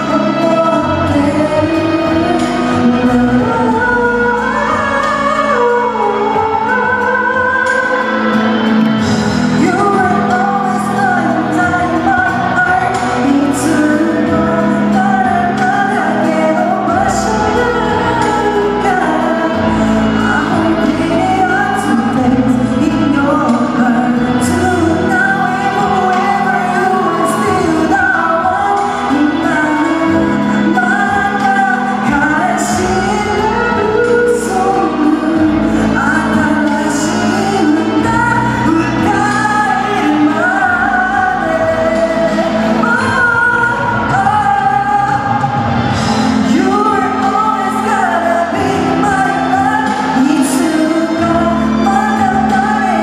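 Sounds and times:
backing track through pa: 0:00.0 - 0:53.0
person singing pop song: 0:00.0 - 0:53.0.

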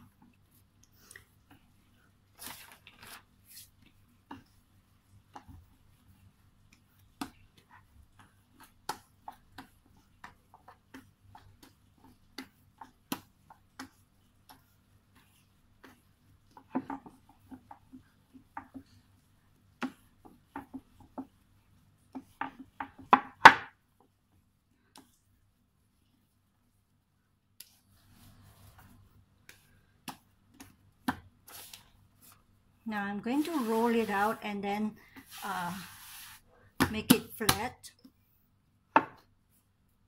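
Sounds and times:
dough thumping on wooden board: 0:22.1 - 0:23.8.

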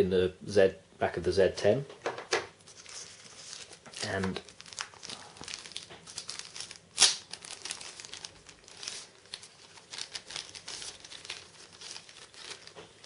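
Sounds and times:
plastic bag crinkling: 0:02.7 - 0:13.0.

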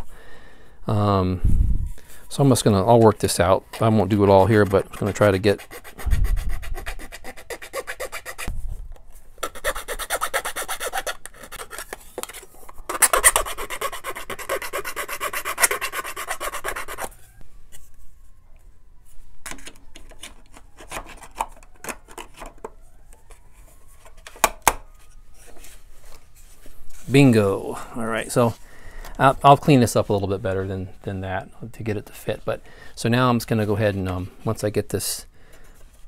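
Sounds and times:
needle file rasping on metal: 0:04.3 - 0:08.5, 0:09.4 - 0:12.0, 0:13.0 - 0:17.1.

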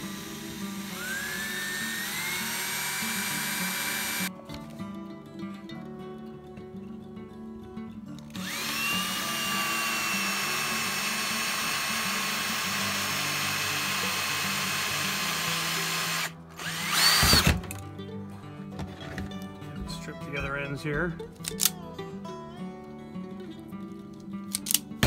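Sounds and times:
power drill whine: 0:00.0 - 0:04.3, 0:08.3 - 0:17.7
background music: 0:00.0 - 0:25.0.

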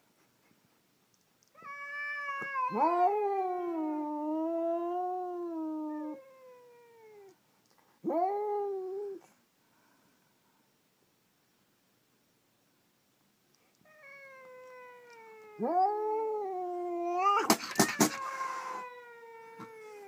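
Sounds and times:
cats yowling: 0:01.6 - 0:07.4, 0:13.9 - 0:20.0.

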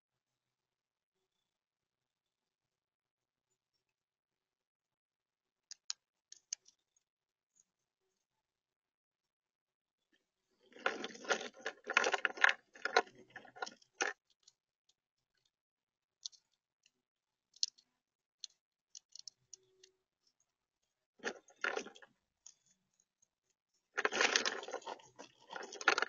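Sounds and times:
squirrel gnawing nuts: 0:10.6 - 0:14.5, 0:17.5 - 0:17.8, 0:23.9 - 0:26.0
crunching and rattling clicks: 0:10.6 - 0:14.6, 0:21.2 - 0:22.8, 0:23.9 - 0:26.0.

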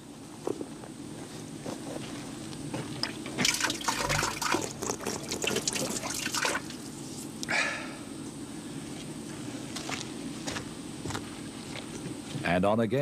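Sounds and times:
water splashing from pump spout: 0:03.0 - 0:06.8.

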